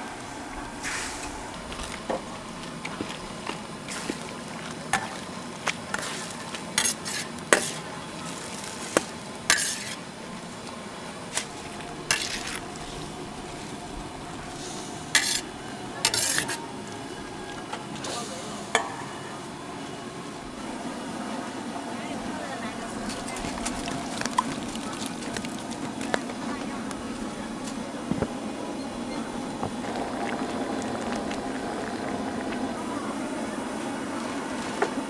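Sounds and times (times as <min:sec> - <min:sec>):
metal scraping on metal: 0:09.5 - 0:10.0, 0:12.1 - 0:12.6, 0:15.1 - 0:16.6
sauce sizzling: 0:29.4 - 0:33.5.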